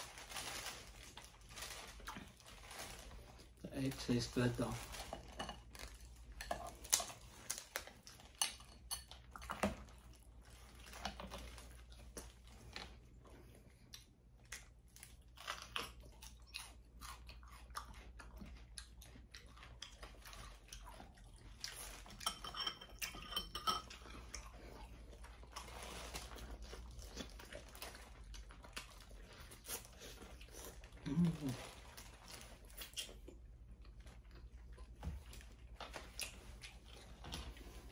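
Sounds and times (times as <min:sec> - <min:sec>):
crunchy chewing: 0:04.7 - 0:22.2, 0:23.8 - 0:37.9.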